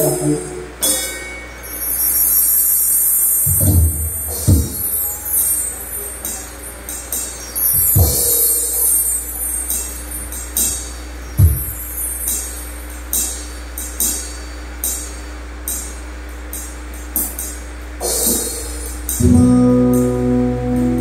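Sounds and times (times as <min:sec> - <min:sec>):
steady low hum: 0:00.0 - 0:21.0
jingly percussion taps: 0:11.4 - 0:12.5
sustained chord notes: 0:19.2 - 0:21.0.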